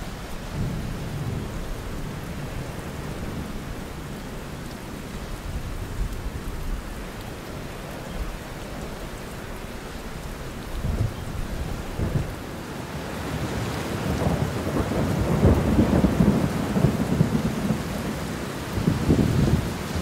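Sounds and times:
wind buffeting microphone: 10.6 - 12.5, 18.7 - 20.0.

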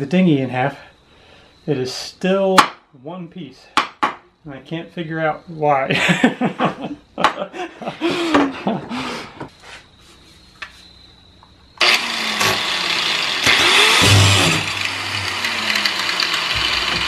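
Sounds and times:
man laughing: 5.8 - 9.4
power tool cutting plywood: 11.8 - 17.0.

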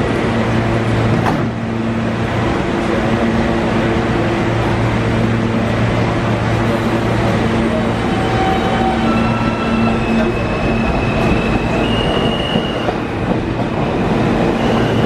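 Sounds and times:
train doors sliding shut: 0.9 - 1.8.

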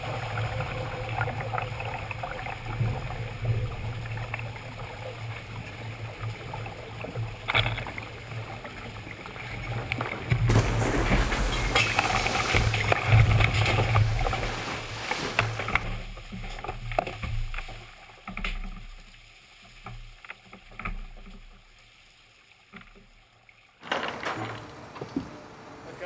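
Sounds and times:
rushing splashing water: 0.0 - 19.0.

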